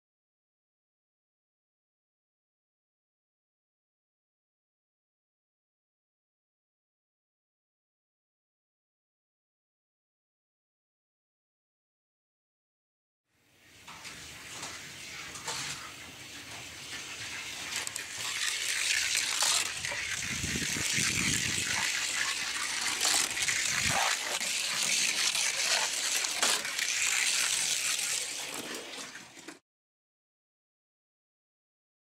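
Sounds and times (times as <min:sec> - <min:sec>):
toy car wheels hissing on track: 0:15.2 - 0:29.6.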